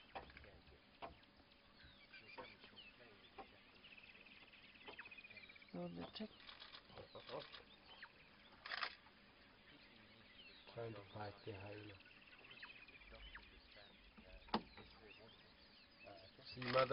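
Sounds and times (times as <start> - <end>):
bird chirps: 0.0 - 16.9
bird trill: 1.0 - 16.9
noisy rustle: 6.3 - 7.8, 8.5 - 9.1.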